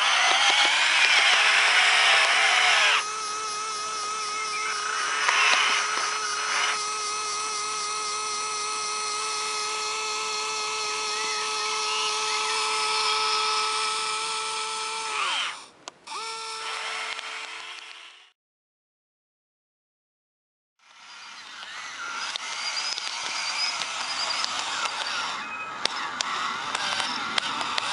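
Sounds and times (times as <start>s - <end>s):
electric motor whine: 0.0s - 18.3s, 20.8s - 27.9s
click: 17.1s - 18.0s.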